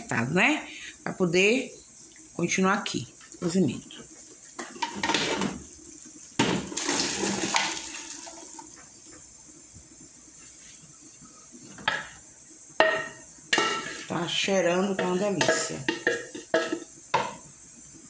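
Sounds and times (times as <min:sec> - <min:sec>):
beans and liquid splashing into pot: 0:02.0 - 0:08.8.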